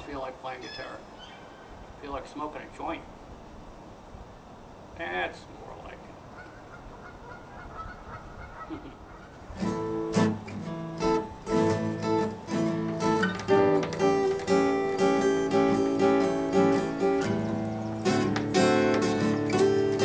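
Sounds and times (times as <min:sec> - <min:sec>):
acoustic guitar chords: 0:09.6 - 0:20.0.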